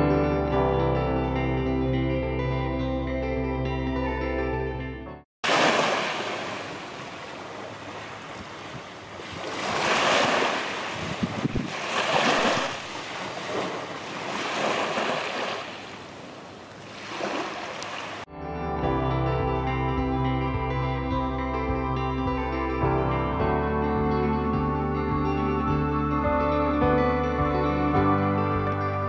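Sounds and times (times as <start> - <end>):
sea waves breaking on beach: 5.4 - 18.3.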